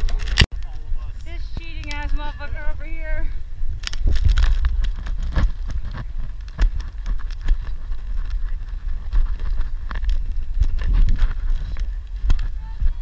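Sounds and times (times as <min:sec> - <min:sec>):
wind rumbling on microphone: 0:00.0 - 0:13.0
knocks and crunches: 0:03.8 - 0:12.5.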